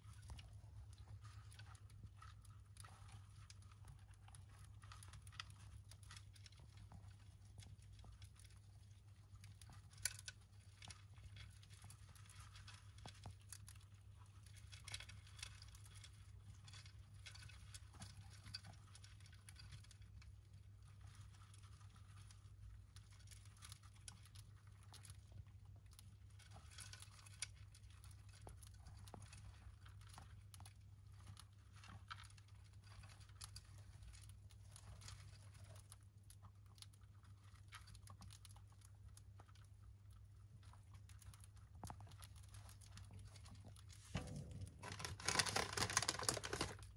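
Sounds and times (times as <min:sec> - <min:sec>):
hamsters rustling in bedding: 0:37.2 - 0:46.9
low steady hum: 0:38.6 - 0:46.9.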